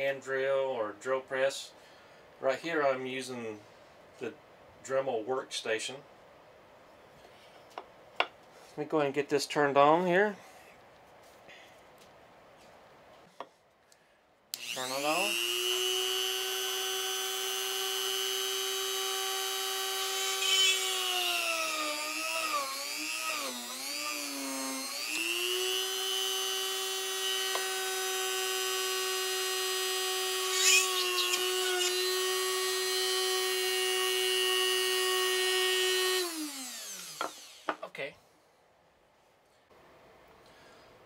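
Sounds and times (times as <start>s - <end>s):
rotary tool winding down: 14.6s - 37.7s
bit boring into wood: 14.6s - 37.8s
rotary tool whining: 14.6s - 37.8s.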